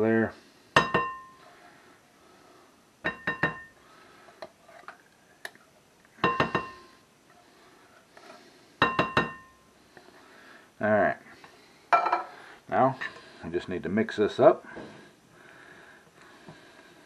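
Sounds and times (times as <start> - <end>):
metal knocking on glass bowl: 0.8 - 1.4, 3.1 - 3.7, 6.2 - 6.9, 8.8 - 9.6.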